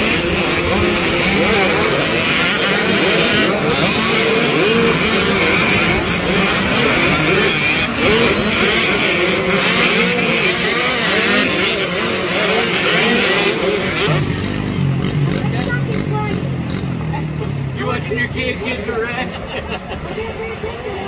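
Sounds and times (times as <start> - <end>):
motocross engines revving: 0.0 - 21.0.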